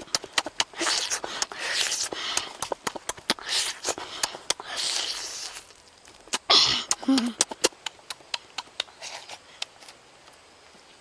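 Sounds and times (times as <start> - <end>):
breathy sucking: 0.0 - 5.7
lip smacks and chewing: 0.0 - 10.0.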